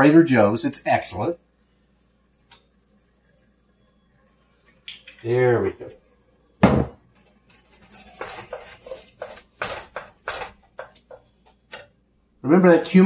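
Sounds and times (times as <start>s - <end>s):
glass bottle knocking on counter: 6.6s - 7.0s
wooden spoon scraping pot: 7.2s - 11.9s.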